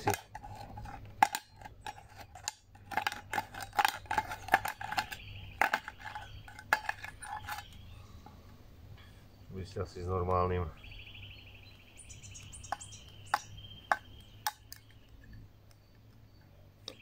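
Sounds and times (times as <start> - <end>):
can opener cutting tin can: 0.0 - 7.8.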